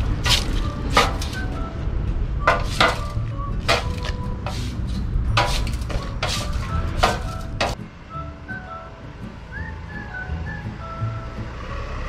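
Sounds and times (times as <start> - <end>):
tool scraping wet asphalt: 0.0 - 1.6, 2.5 - 7.8
low rumble: 0.0 - 12.0.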